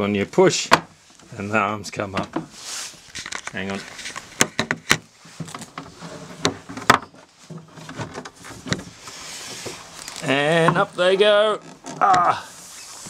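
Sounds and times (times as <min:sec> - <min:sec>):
wooden table clicks and knocks: 0:04.4 - 0:05.1, 0:06.4 - 0:07.1.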